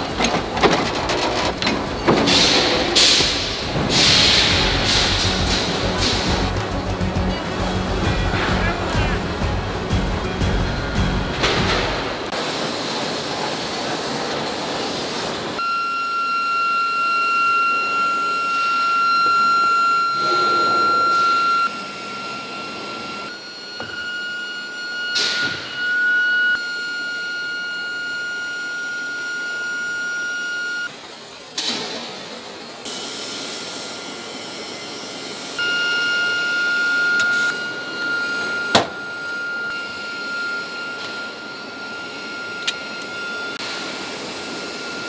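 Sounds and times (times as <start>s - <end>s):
high-pitched machine whine: 0.0s - 45.0s.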